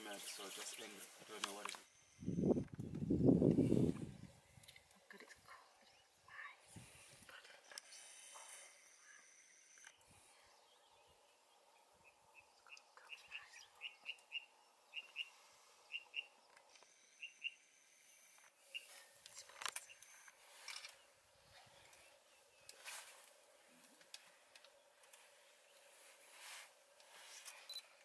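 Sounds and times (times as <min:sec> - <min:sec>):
bird chirping: 0:07.3 - 0:23.0.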